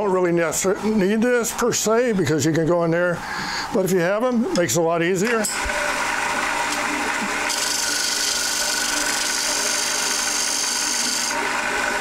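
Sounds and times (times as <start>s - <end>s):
lathe motor hum: 5.5s - 12.0s.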